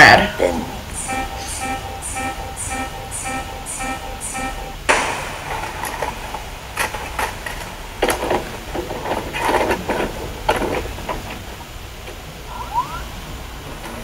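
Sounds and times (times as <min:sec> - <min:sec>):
tape hiss: 0:00.0 - 0:14.0
burst of noise: 0:00.8 - 0:09.5.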